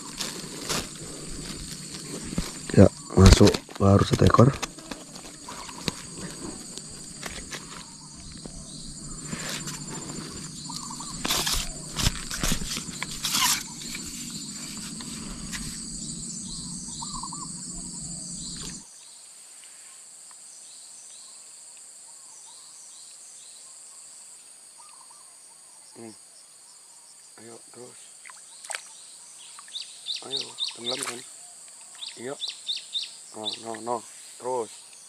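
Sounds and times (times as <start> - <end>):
handling rustles and knocks: 0.0 - 2.8, 4.5 - 16.0
insects chirring: 0.0 - 19.1, 27.1 - 35.0.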